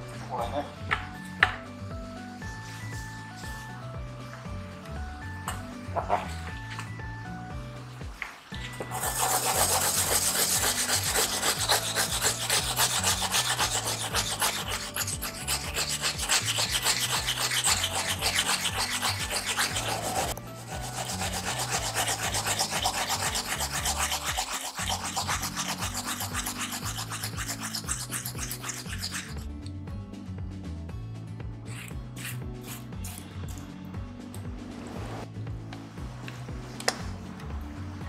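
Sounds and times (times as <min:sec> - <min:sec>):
turnip grating on metal grater: 0:08.9 - 0:29.4.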